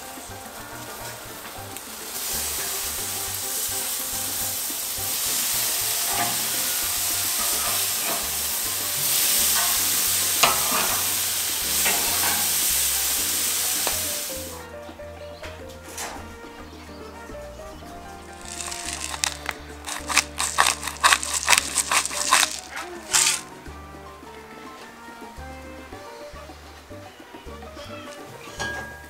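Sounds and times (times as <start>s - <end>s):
chicken sizzling on grill: 0.0s - 14.7s, 18.3s - 24.0s
spitting fat crackles: 2.2s - 12.5s, 18.4s - 23.5s.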